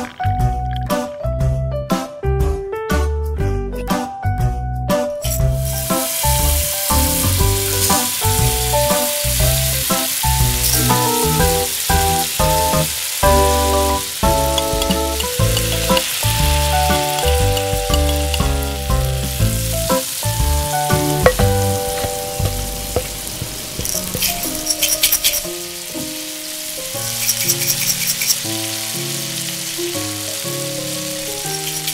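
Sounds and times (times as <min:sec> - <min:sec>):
oil sizzling in a wok: 0:05.2 - 0:31.9
melody with bass line: 0:05.3 - 0:24.2
spoon clinking on pan: 0:14.4 - 0:16.2, 0:16.9 - 0:18.6.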